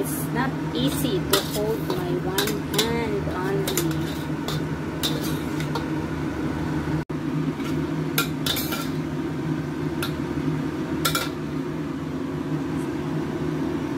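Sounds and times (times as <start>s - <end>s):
steady low hum: 0.0s - 13.9s
metal spoon clinking on wok: 3.6s - 5.4s.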